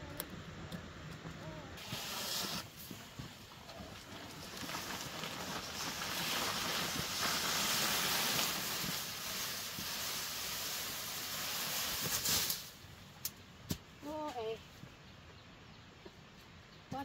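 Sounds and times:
fern fronds rustling: 1.8 - 12.9.

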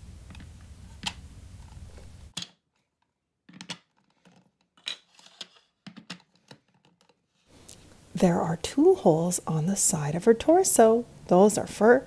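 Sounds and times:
plastic building blocks clicking: 2.3 - 7.2.

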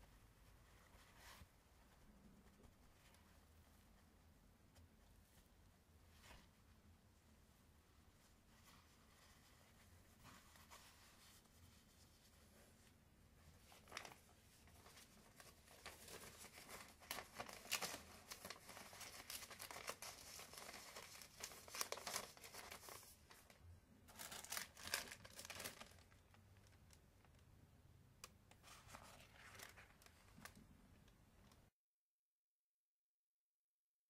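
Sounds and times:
paper and cloth rustling: 0.4 - 4.2, 7.9 - 26.9, 28.6 - 30.7.

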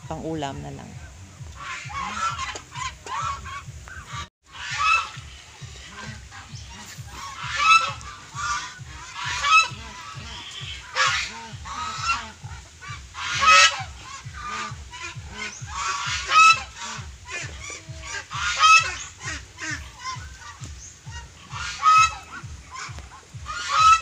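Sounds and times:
geese honking: 0.0 - 24.0.

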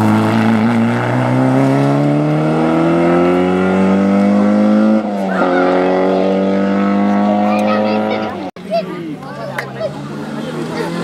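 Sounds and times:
rally car engine at full throttle: 0.0 - 8.5, 9.6 - 11.0.

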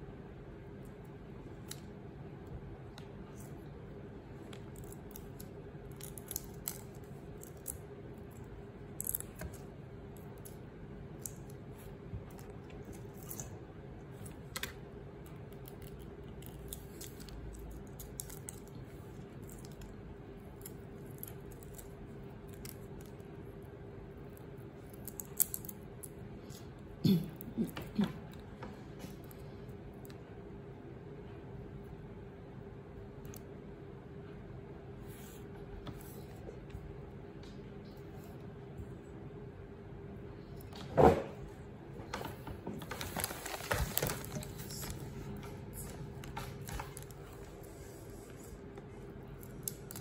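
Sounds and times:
steady low hum: 0.0 - 50.0
shrimp shells clicking and crackling: 4.5 - 8.4, 25.0 - 26.2.

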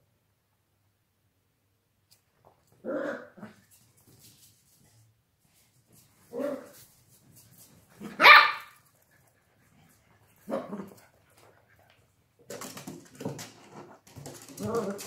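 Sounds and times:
puppy barking: 8.0 - 8.8.

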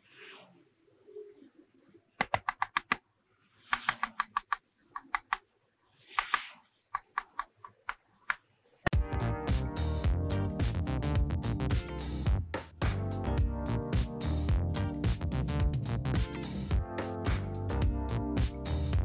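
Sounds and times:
rapid sharp clicks: 2.2 - 3.0, 3.7 - 5.5, 6.2 - 8.4
music: 8.9 - 19.0.

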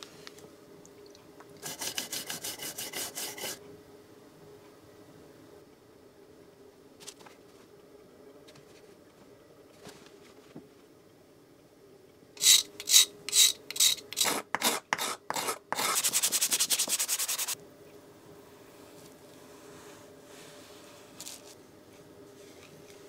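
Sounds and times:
sandpaper rubbing wood: 1.6 - 3.6, 12.4 - 17.6
knife scraping wooden handle: 12.4 - 17.5.

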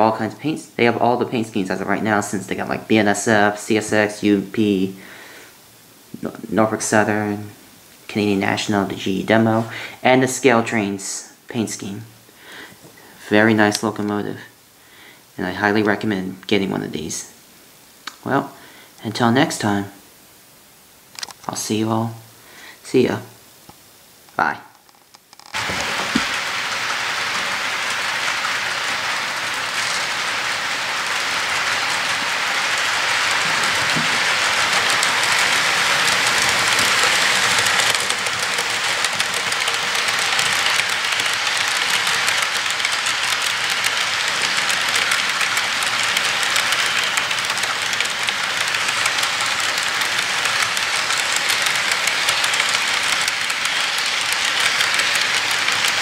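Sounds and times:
model train wheels rattling on track: 0.0 - 5.0, 6.2 - 11.9, 25.4 - 56.0.

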